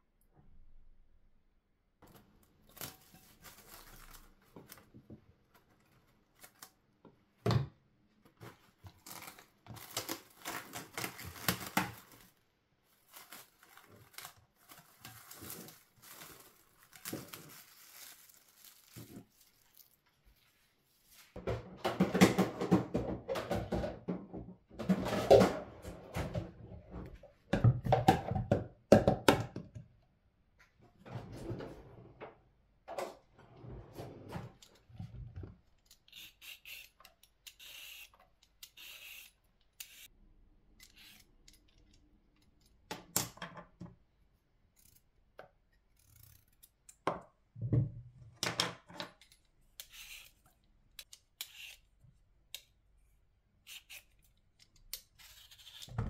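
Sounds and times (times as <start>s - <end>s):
cling film crinkling: 2.6s - 4.9s, 8.9s - 20.2s.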